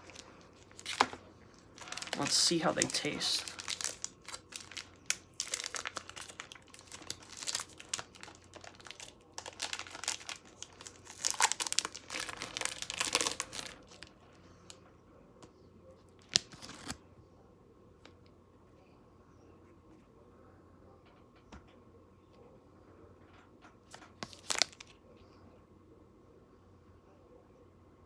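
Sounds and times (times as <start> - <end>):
foil wrapper crinkling and tearing: 0.0 - 14.1, 16.2 - 17.0, 24.2 - 25.0.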